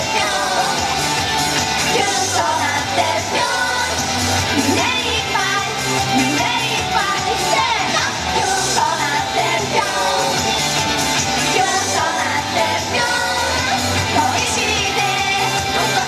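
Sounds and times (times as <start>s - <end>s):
pop backing track over loudspeakers: 0.0s - 16.0s.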